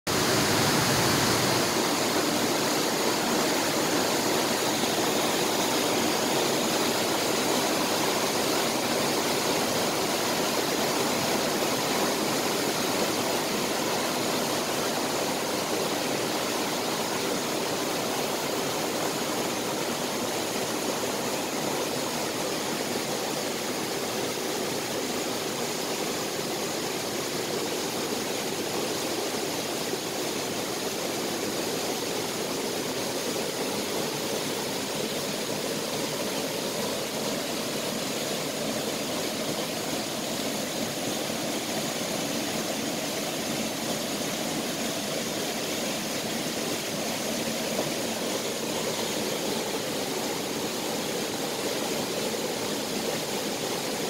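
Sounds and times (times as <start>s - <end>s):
waterfall rushing over rocks: 0.1s - 54.0s.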